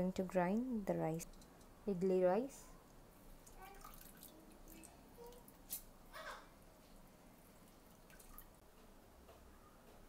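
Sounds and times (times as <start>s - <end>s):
wet squishing and dripping: 2.8s - 5.9s, 7.6s - 8.6s.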